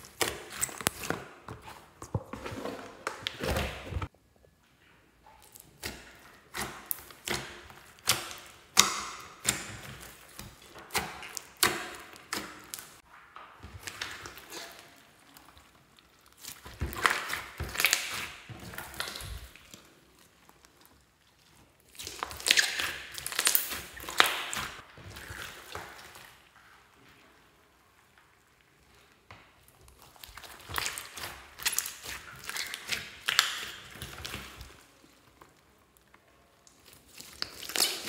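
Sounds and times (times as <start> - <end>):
slime popping and squelching: 0.0 - 2.1, 5.4 - 26.6, 29.6 - 38.0.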